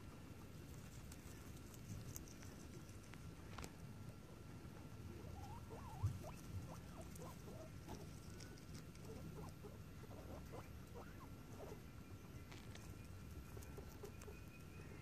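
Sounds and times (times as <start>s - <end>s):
guinea pigs squeaking: 0.0s - 15.0s.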